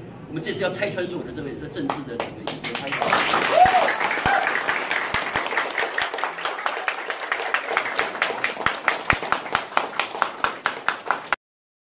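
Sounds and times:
person clapping close by: 1.9s - 11.4s
small crowd applauding: 1.9s - 11.4s.

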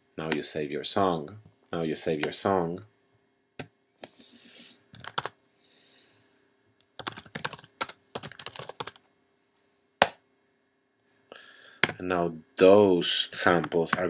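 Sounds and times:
typing on computer keyboard: 5.0s - 5.3s, 7.0s - 9.0s.

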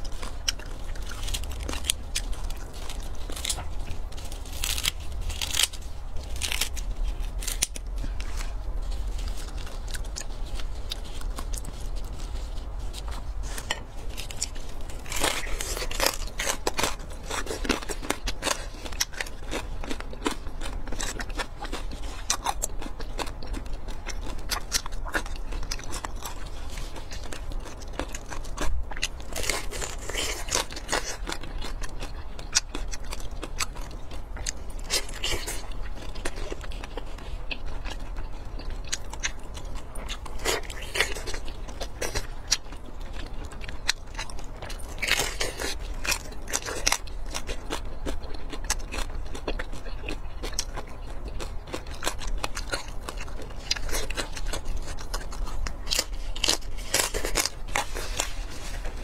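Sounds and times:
scissors snipping crispy crust: 0.0s - 8.5s, 13.0s - 37.0s, 51.7s - 58.3s
crunching and chewing: 0.0s - 59.0s.

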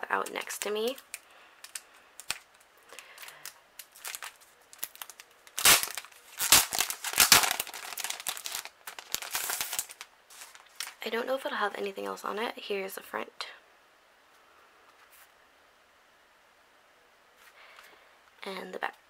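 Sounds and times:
plastic wrapping crinkling: 0.0s - 11.1s.

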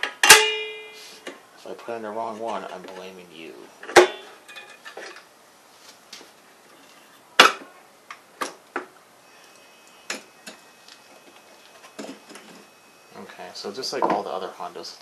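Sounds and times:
metal tools clicking and clinking: 3.9s - 5.2s.

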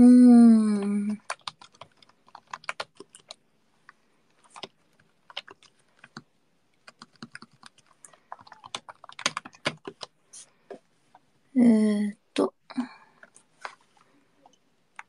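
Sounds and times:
typing on computer keyboard: 1.1s - 3.4s, 4.4s - 10.2s.

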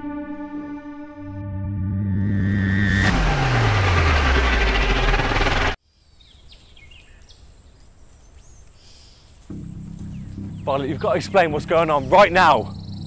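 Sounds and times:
deep tone sliding downward: 0.0s - 5.8s
rush of loud noise: 2.2s - 5.8s
faint birdsong: 5.8s - 13.0s.

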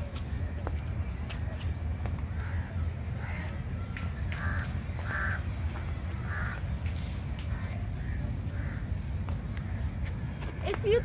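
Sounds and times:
crows cawing: 4.4s - 6.7s, 7.5s - 9.9s.

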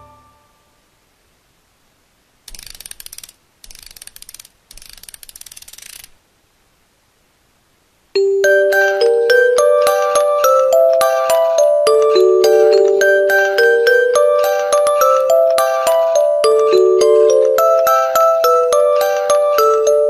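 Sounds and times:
background music: 0.0s - 0.6s, 8.2s - 20.0s
rapid ratchet-like clicking: 2.5s - 6.2s
music box melody: 8.2s - 20.0s.

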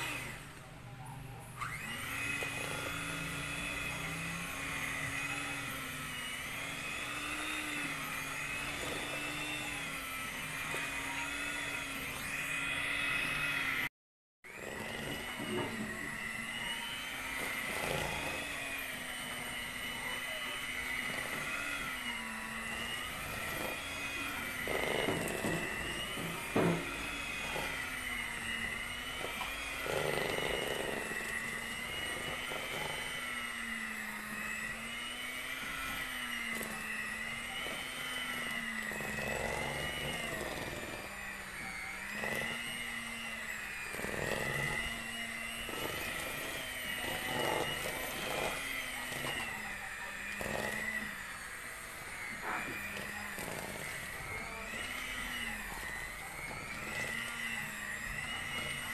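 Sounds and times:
electric mixer whirring: 0.0s - 58.9s.

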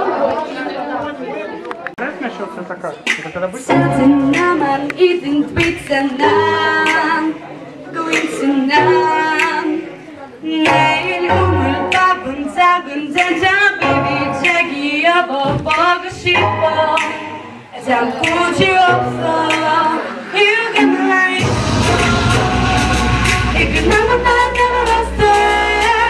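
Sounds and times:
person singing: 3.7s - 26.0s
low bass notes: 21.4s - 26.0s.

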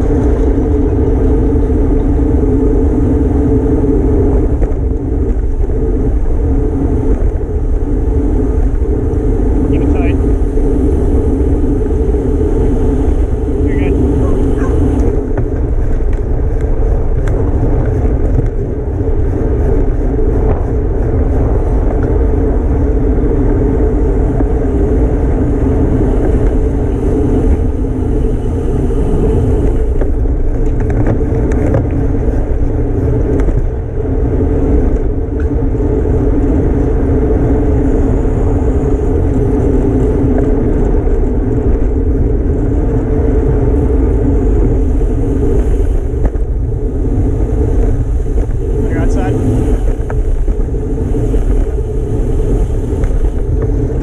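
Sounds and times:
wind rushing over microphone: 0.0s - 54.0s.

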